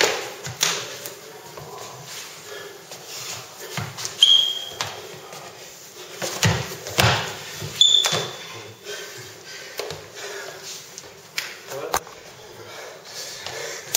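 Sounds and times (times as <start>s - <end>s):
shoes squeaking on floor: 3.0s - 5.5s, 6.2s - 8.9s
knocks of arms and feet: 6.2s - 8.3s
bodies thumping on wooden floor: 6.2s - 8.5s.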